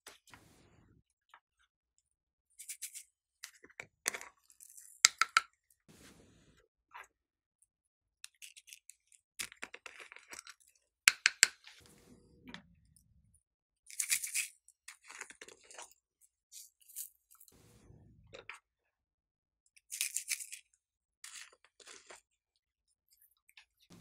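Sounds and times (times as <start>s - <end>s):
plastic containers clicking and tapping: 5.1s - 5.5s, 11.1s - 11.6s.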